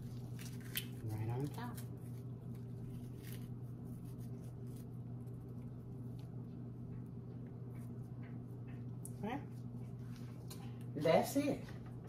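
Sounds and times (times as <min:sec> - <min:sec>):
cookies crumbling crackles: 0:00.0 - 0:08.2
low hum: 0:00.0 - 0:12.0.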